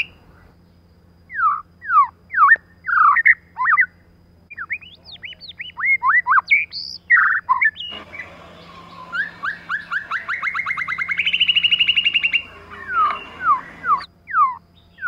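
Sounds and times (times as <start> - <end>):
bird singing whistled phrases: 4.5 - 15.0
bird trill: 4.5 - 15.0.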